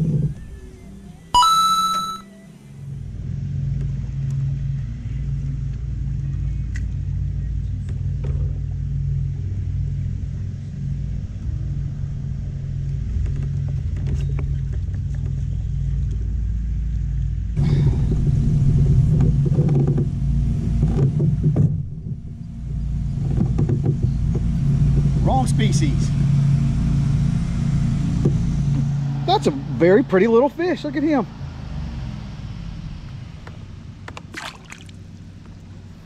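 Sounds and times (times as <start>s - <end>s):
pedal-drive kayak rumble: 0.0s - 1.7s, 2.8s - 36.0s
short electronic chime: 1.4s - 2.3s.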